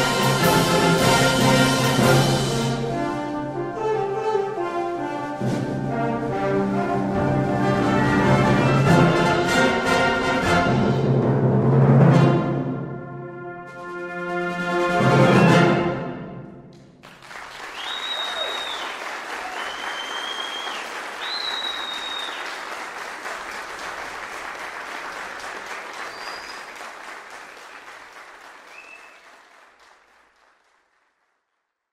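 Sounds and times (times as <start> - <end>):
timpani: 0.0 - 17.0
audience applause: 17.0 - 31.5
shrill whistles: 17.7 - 22.7, 26.0 - 26.8, 28.7 - 29.4.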